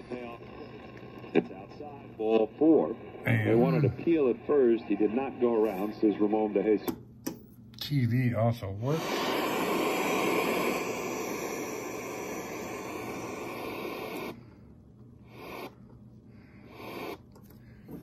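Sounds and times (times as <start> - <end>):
television static hiss: 0.0 - 14.5, 15.2 - 15.9, 16.6 - 17.4.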